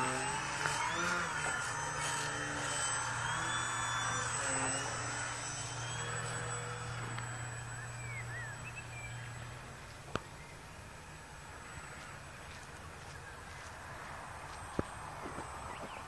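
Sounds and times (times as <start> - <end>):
model plane motor droning: 0.0 - 16.0
faint bird chirps: 5.4 - 16.0.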